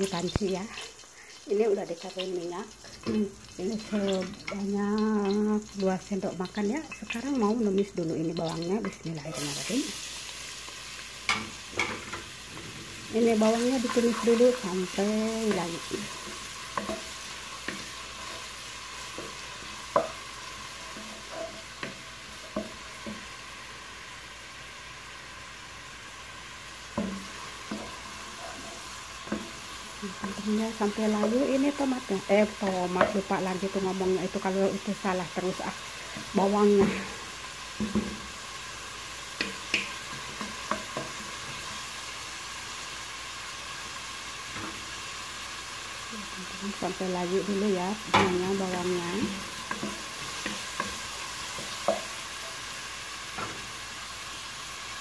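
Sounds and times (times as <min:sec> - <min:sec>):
onion sizzling in hot oil: 0:00.0 - 0:55.0
wooden spoon tapping pot: 0:19.1 - 0:20.3.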